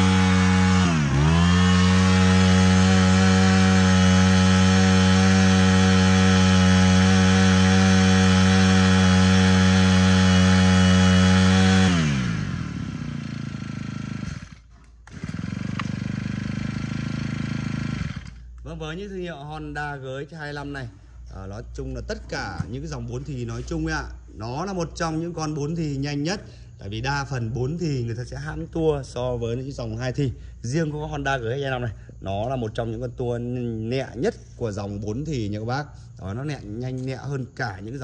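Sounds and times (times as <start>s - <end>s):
brush cutter engine running: 0.0s - 18.8s.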